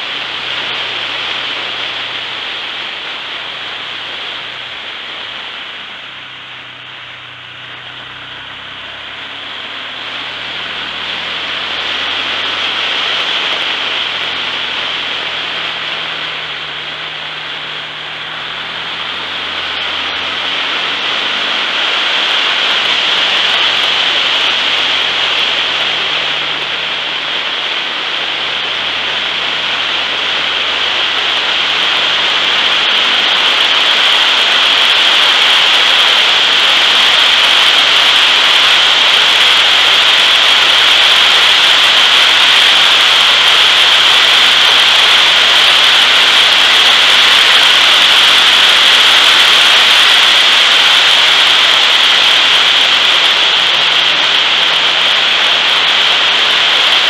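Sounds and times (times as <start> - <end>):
faint engine: 0.0 - 57.0
wind and road noise: 0.0 - 57.0.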